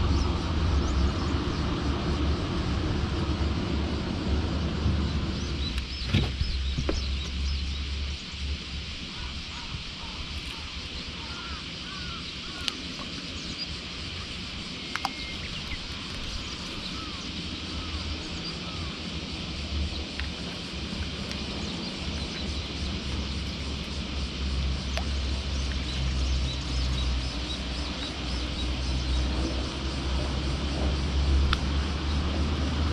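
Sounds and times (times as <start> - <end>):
low engine drone: 0.0 - 32.9
small bird calls: 5.0 - 32.9.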